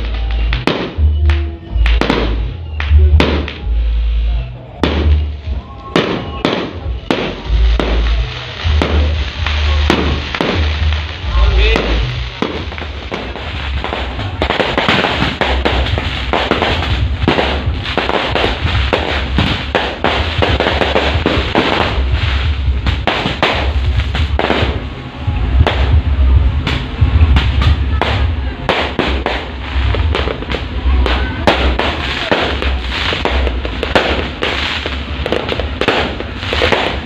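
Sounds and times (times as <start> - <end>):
firecrackers banging and crackling: 0.0 - 37.0
loud bass-heavy music: 0.0 - 37.0.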